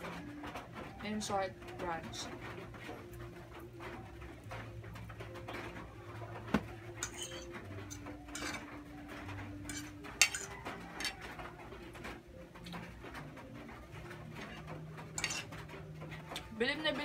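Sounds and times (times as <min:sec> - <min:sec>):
metal fork clinking on plate: 0:07.0 - 0:08.7, 0:09.7 - 0:11.2, 0:15.2 - 0:15.6.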